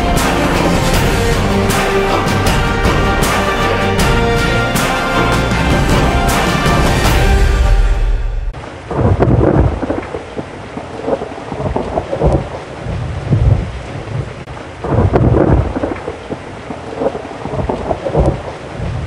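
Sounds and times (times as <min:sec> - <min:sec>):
music: 0:00.0 - 0:08.6
thunder rumbling: 0:00.0 - 0:19.0.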